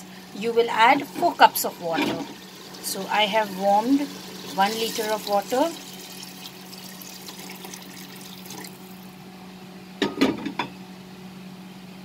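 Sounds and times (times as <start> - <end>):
water pouring into pot: 2.3 - 9.1.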